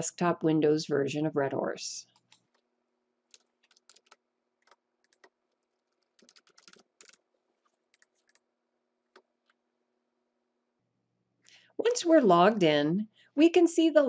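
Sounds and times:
faint keyboard typing: 2.1s - 2.7s, 3.3s - 8.5s, 9.1s - 9.6s.

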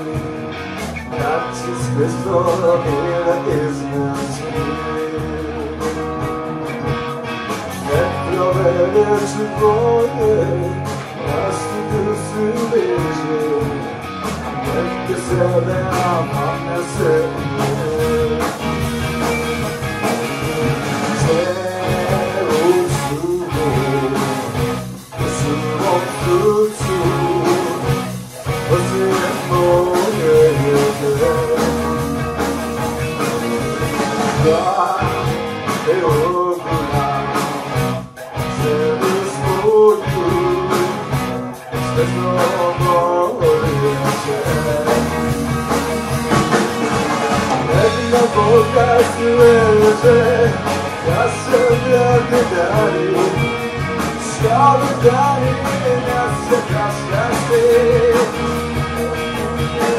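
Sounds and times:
man singing: 0.0s - 6.8s, 7.8s - 19.3s, 19.9s - 59.9s
drum kit: 0.0s - 59.9s
electric bass: 0.0s - 59.9s
electric guitars: 0.0s - 59.9s.

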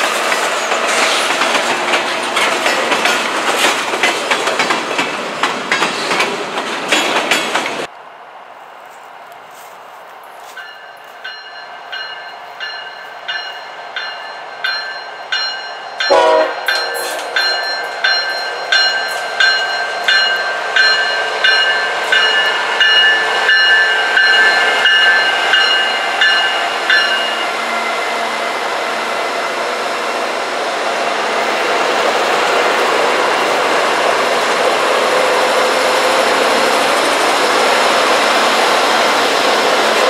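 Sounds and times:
diesel locomotives passing: 0.0s - 40.0s
locomotive bell ringing: 10.4s - 27.8s.

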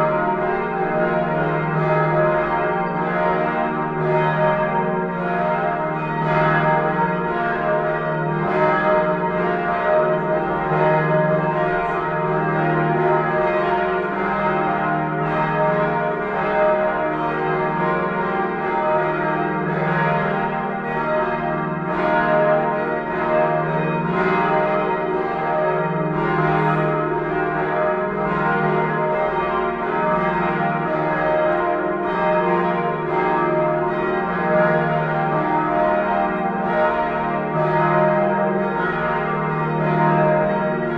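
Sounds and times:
church bells pealing: 0.0s - 40.9s.

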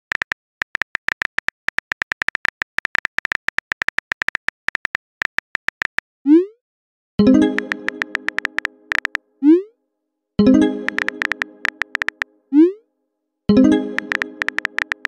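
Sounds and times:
keyboard key-tap clicks: 7.4s - 9.2s, 10.8s - 12.3s, 13.9s - 15.0s.

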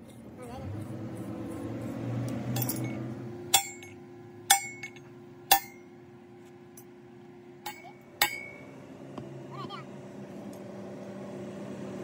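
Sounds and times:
hammer striking steel: 2.6s - 6.0s, 7.6s - 8.7s.

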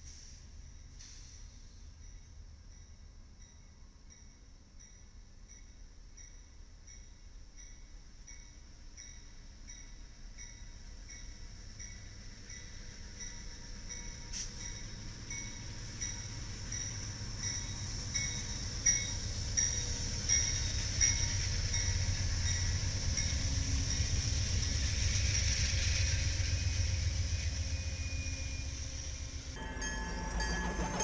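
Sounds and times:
train rumbling: 6.0s - 31.0s
bell clanging: 29.6s - 31.0s.

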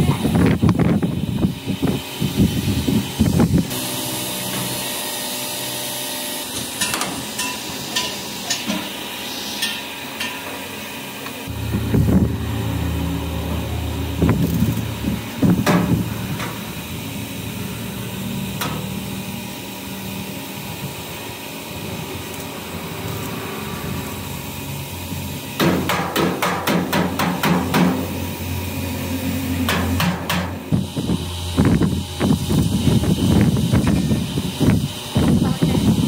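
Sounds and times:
low machine hum: 11.2s - 36.0s
hammer strikes: 25.6s - 28.2s, 29.6s - 30.6s.

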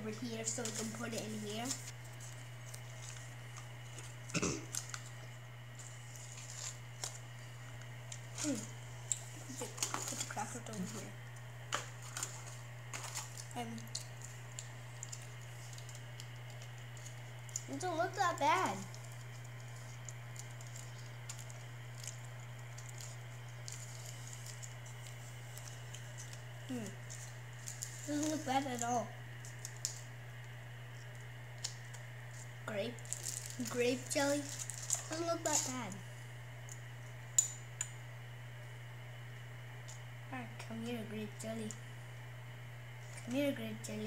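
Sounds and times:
steady low hum: 0.0s - 44.0s
foil packet crinkling: 0.2s - 11.1s, 11.7s - 36.0s.

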